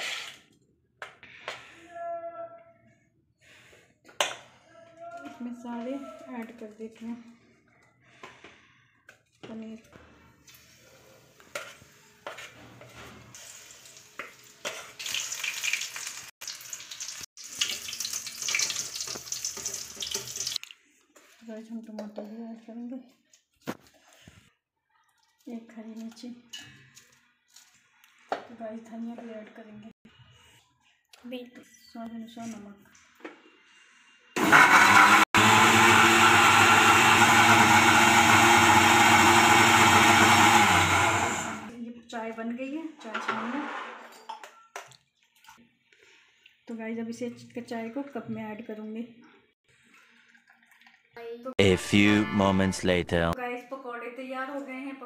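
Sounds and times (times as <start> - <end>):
deep-frying sizzle: 13.3 - 20.7
mixer grinder whirring: 34.4 - 41.7.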